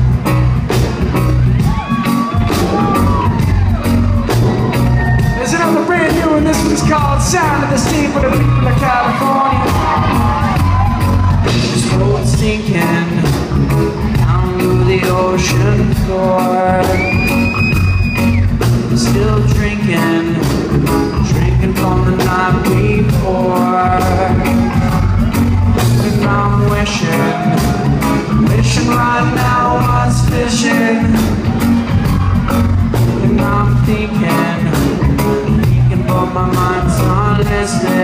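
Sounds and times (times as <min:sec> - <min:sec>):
heavy bass: 0:00.0 - 0:38.0
live reggae band: 0:00.0 - 0:38.0
steady drum beat: 0:00.0 - 0:38.0
sung vocals: 0:04.8 - 0:13.6, 0:14.2 - 0:17.6, 0:18.9 - 0:31.6, 0:33.2 - 0:38.0.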